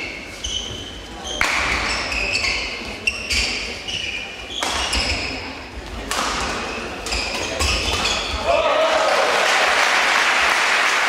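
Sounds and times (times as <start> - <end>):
shoes squeaking on floor: 0.0 - 8.5
racket hitting shuttlecock: 1.3 - 2.0, 4.6 - 5.3, 6.0 - 8.3.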